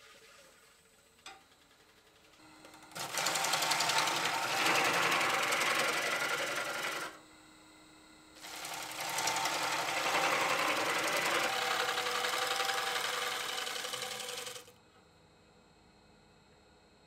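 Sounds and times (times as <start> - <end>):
faint lathe hum: 0.0 - 17.0
lathe gouge cutting wood: 2.8 - 7.2, 8.4 - 14.7.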